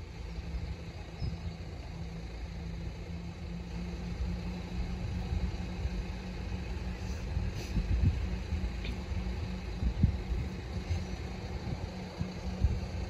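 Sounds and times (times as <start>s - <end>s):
engine idling: 0.0s - 13.0s
faint constant hum: 0.0s - 13.0s.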